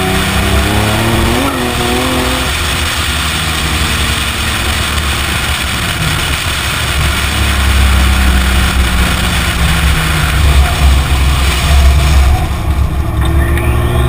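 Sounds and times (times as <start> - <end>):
car engine running: 0.0 - 14.0.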